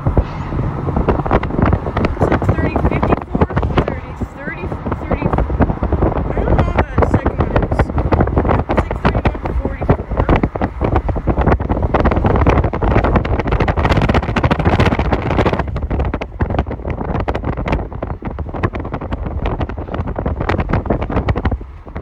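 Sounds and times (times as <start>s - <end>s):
freight train rumbling past: 0.0s - 17.0s
wind buffeting microphone: 0.0s - 22.0s.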